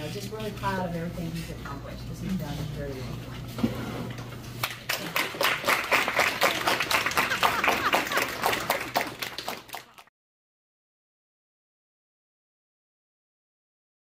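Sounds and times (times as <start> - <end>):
people clapping: 4.6 - 10.1.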